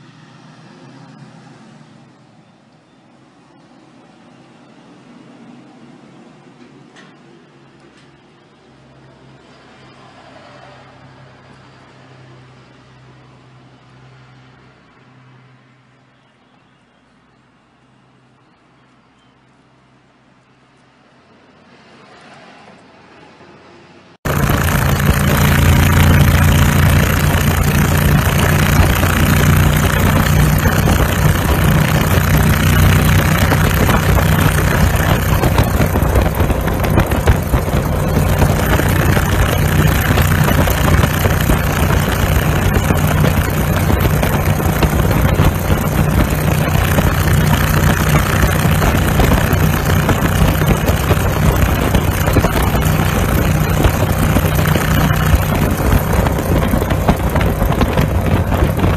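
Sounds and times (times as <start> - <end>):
small car engine running: 24.2 - 58.9
wind rushing over microphone: 24.3 - 58.9.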